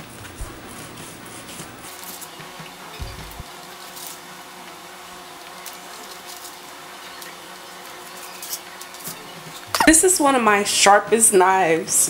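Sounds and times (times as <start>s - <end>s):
steady low hum: 0.2s - 1.9s, 3.0s - 3.4s.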